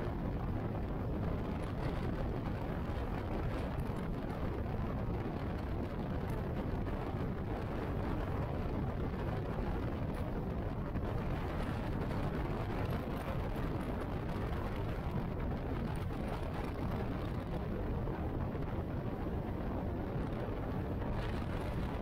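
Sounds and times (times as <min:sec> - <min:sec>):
wind and road noise: 0:00.0 - 0:22.0.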